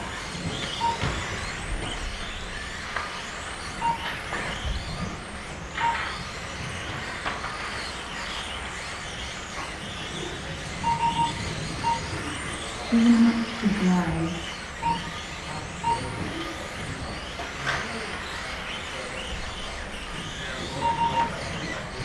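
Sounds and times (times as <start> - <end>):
small electric motors whining: 0.0 - 22.0
short beeps: 0.8 - 1.1, 3.8 - 4.2, 10.8 - 12.2, 14.8 - 15.1, 15.8 - 16.4, 20.8 - 21.4.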